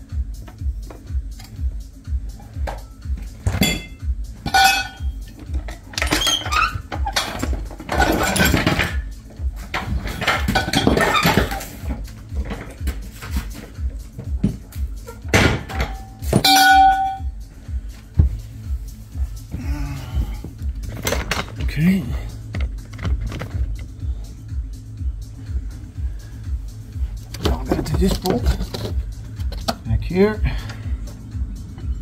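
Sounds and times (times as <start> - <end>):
background music with low beat: 0.0 - 32.0
metal tools clanking: 3.4 - 12.8, 15.0 - 17.3, 20.8 - 21.8
ringing metal clang: 3.6 - 5.2, 15.4 - 17.3.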